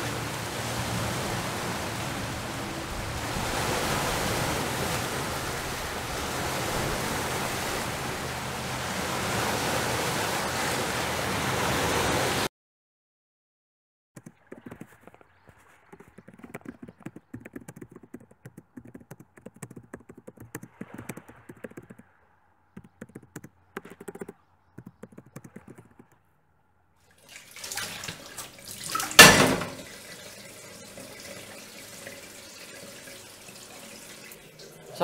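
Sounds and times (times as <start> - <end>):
laptop keyboard typing: 15.9 - 22.1, 22.8 - 26.2
dish clanking: 28.8 - 30.0
tap running into steel sink: 28.8 - 30.0.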